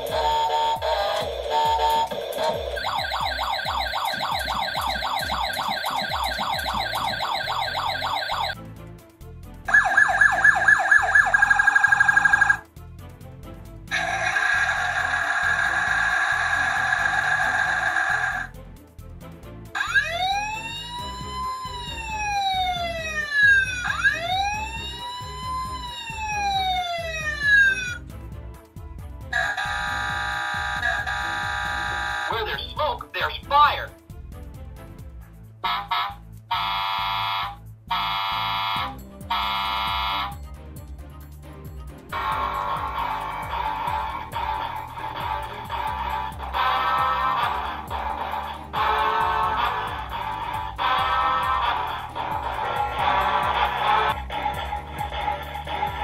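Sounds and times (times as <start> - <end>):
electronic yelp siren: 0.0 - 8.6, 9.7 - 12.6, 14.0 - 18.5, 19.8 - 28.0, 29.4 - 32.6, 35.8 - 40.4, 42.2 - 56.0
toy horn-like tones: 0.0 - 8.6, 29.4 - 32.8, 35.6 - 40.4, 42.1 - 56.0
music with low beat: 0.0 - 56.0.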